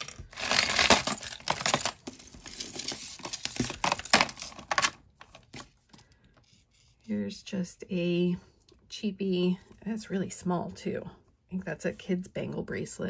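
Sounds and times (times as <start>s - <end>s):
jewelry clicking and clattering: 0.0s - 5.0s.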